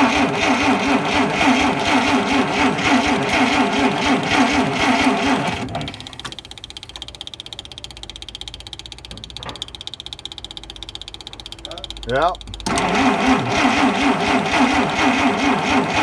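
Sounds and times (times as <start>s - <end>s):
engine cranking by starter motor: 0.0s - 16.0s.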